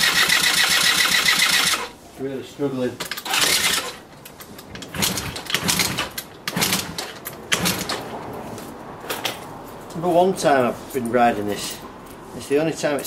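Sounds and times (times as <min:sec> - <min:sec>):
moped engine kick-starting: 0:00.0 - 0:01.9, 0:03.0 - 0:04.0, 0:04.7 - 0:08.1.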